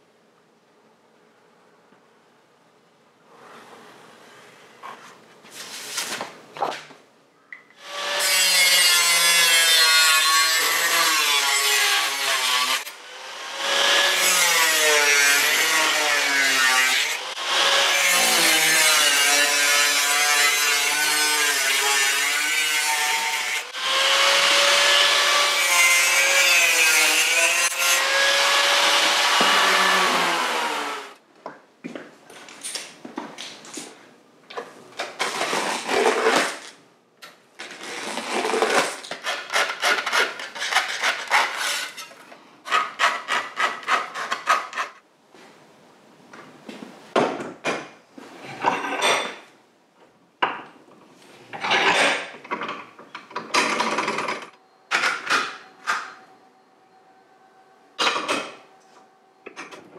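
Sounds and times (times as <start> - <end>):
angle grinder cutting sheet steel: 7.8 - 31.2, 39.2 - 42.2.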